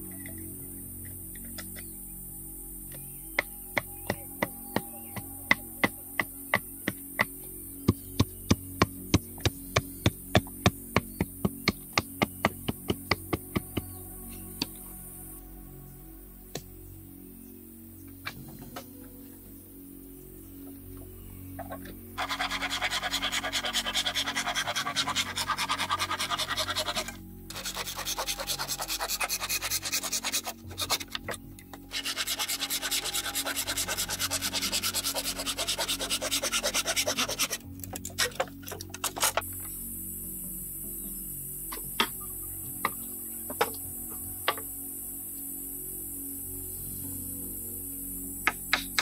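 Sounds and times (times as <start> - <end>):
soft background music: 0.0 - 49.0
rapid rhythmic scraping: 22.2 - 39.6.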